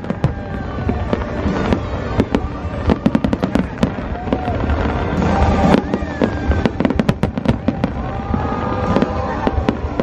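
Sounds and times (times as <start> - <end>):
fireworks bangs: 0.0 - 10.0.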